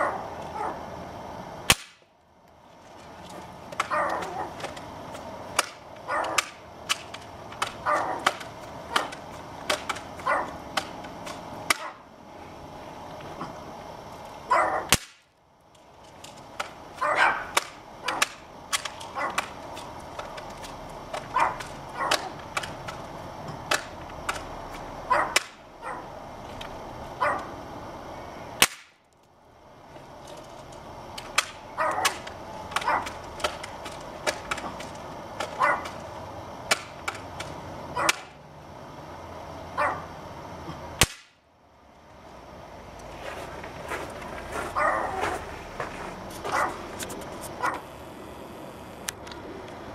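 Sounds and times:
dog barking: 0.0s - 0.8s, 3.9s - 4.6s, 6.1s - 6.4s, 7.8s - 8.3s, 10.2s - 10.6s, 11.8s - 12.0s, 14.5s - 14.9s, 17.0s - 18.2s, 19.1s - 19.4s, 21.3s - 22.4s, 25.1s - 26.1s, 27.2s - 27.5s, 31.8s - 32.2s, 32.8s - 33.1s, 35.6s - 35.9s, 38.0s - 38.3s, 39.8s - 40.1s, 44.7s - 45.4s, 46.4s - 46.8s, 47.6s - 47.9s
bb gun shots cracking: 1.7s - 2.0s, 14.9s - 15.3s, 23.7s - 24.5s, 25.3s - 25.6s, 28.6s - 29.0s, 36.7s - 37.5s, 41.0s - 41.4s
pellets striking phone and board: 1.7s - 2.0s, 3.7s - 11.9s, 14.9s - 15.3s, 17.5s - 25.6s, 28.6s - 29.0s, 31.2s - 36.1s, 36.7s - 38.3s, 41.0s - 41.4s.

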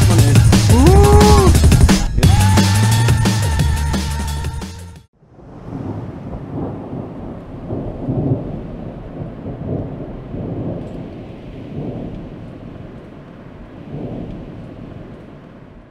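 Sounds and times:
low rolling rumble: 5.3s - 15.9s.

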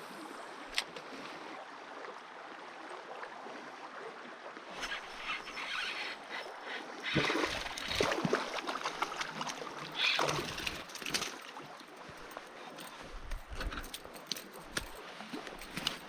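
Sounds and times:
wading steps splashing: 7.0s - 16.0s.

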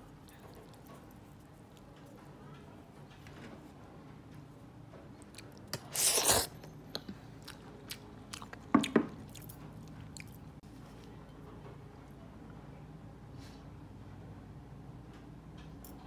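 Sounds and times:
wet squishing of noodles: 0.0s - 1.9s, 5.2s - 10.6s.

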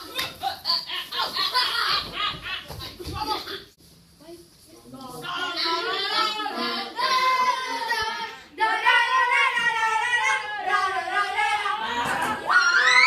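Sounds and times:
children singing unaccompanied: 5.3s - 12.5s
high rising cry: 12.4s - 13.0s.

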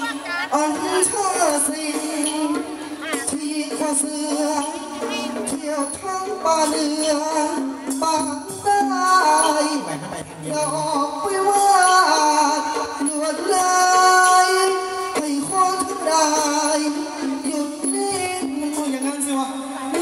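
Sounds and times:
instrumental accompaniment: 0.0s - 20.0s
person singing through microphone: 0.0s - 20.0s.

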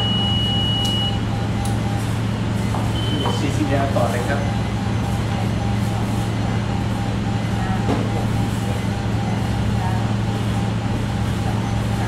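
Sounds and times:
patient monitor short beeping: 0.0s - 1.5s, 2.9s - 4.1s
steady low hum: 0.0s - 12.0s.

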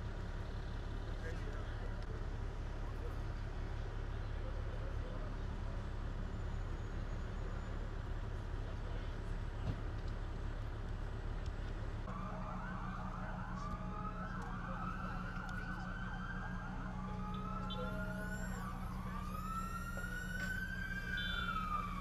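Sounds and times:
emergency siren wailing: 12.1s - 22.0s.

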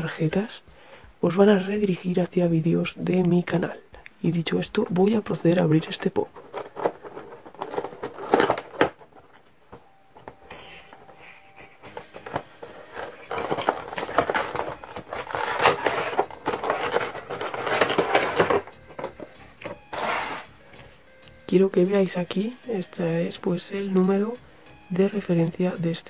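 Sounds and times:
box packaging rustling and clicking: 4.7s - 20.5s.

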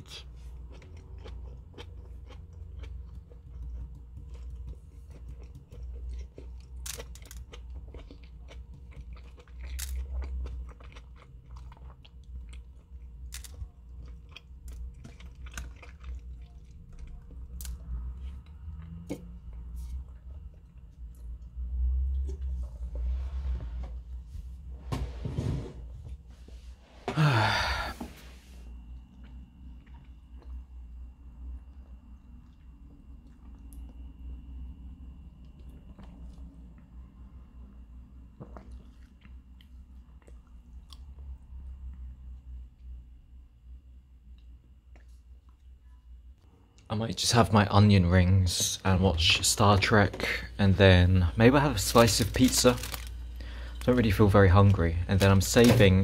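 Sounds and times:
chewing crunchy food: 0.0s - 22.7s, 28.8s - 30.9s, 31.5s - 34.3s, 35.2s - 37.1s, 38.3s - 42.1s, 51.6s - 55.7s.

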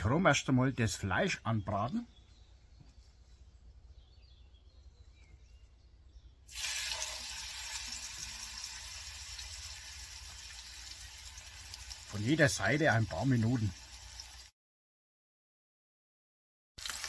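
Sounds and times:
meat sizzling in hot fat: 6.5s - 14.5s, 16.8s - 17.0s.

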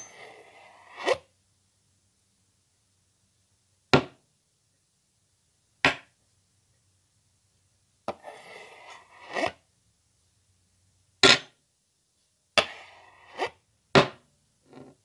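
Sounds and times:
knife slicing scrape: 0.0s - 1.2s, 8.1s - 9.6s, 12.6s - 13.6s.

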